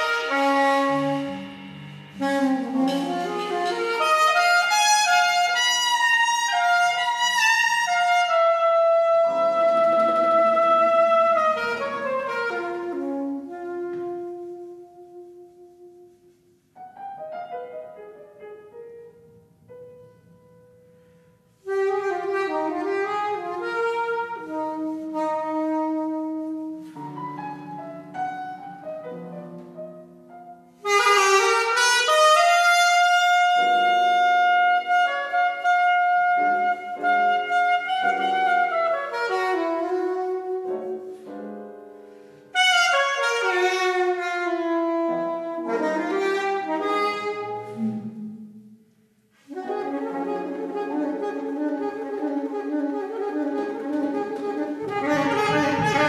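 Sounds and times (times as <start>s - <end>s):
soprano saxophones playing: 0.0s - 16.6s, 21.6s - 28.9s, 30.8s - 41.2s, 42.5s - 56.0s
piano: 0.0s - 56.0s.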